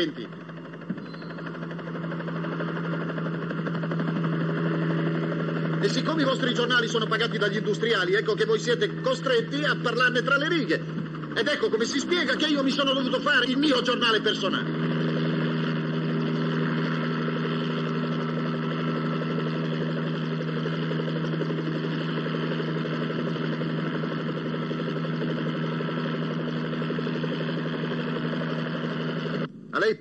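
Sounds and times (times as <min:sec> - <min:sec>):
engine drone: 0:00.0 - 0:29.7.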